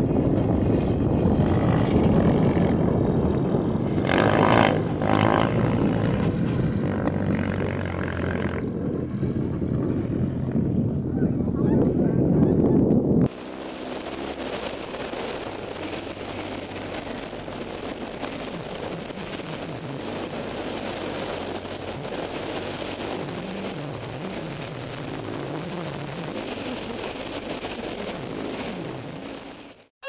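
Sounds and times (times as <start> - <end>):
motorcycle engine running: 0.0 - 10.8, 13.3 - 29.4
wind rush on microphone: 0.0 - 29.9.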